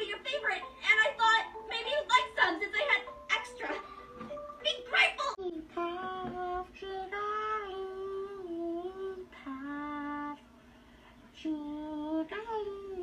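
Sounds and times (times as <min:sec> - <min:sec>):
person singing unaccompanied: 0:04.7 - 0:10.4, 0:11.4 - 0:13.0.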